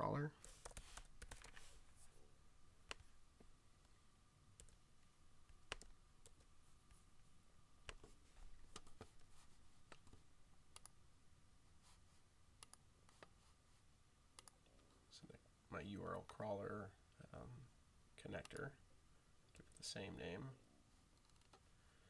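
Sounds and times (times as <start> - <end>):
keyboard typing: 0.4 - 1.8, 2.8 - 3.1, 4.6 - 4.8, 5.5 - 6.5, 7.8 - 11.0, 12.6 - 13.3, 14.4 - 14.6
faint steady tone: 1.7 - 22.0
mouse clicks: 14.4 - 14.6.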